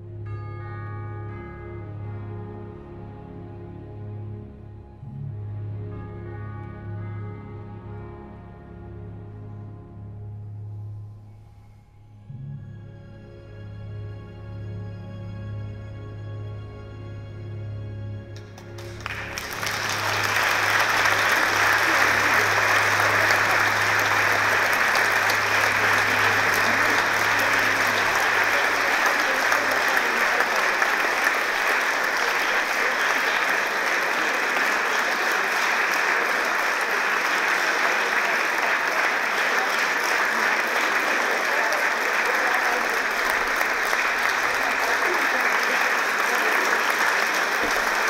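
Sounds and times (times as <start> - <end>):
audience applauding: 18.4 - 48.0.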